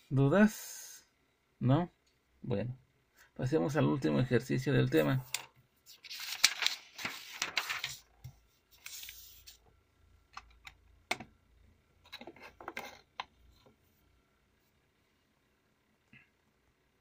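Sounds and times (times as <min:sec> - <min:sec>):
paper rustling on desk: 0:05.8 - 0:09.6.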